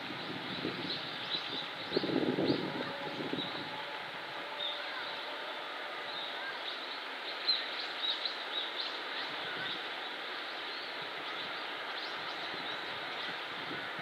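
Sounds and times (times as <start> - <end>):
steady outdoor noise: 0.0 - 14.0.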